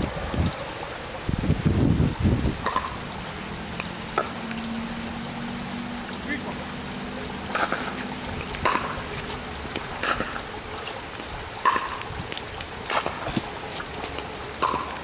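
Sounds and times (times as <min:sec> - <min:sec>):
rain hissing on wet court: 0:00.0 - 0:15.0
paddles hitting plastic ball: 0:14.1 - 0:15.0.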